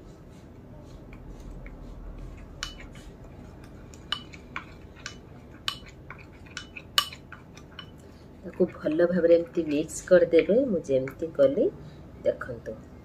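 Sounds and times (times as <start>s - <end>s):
spoon clinking against bowl: 3.9s - 8.0s.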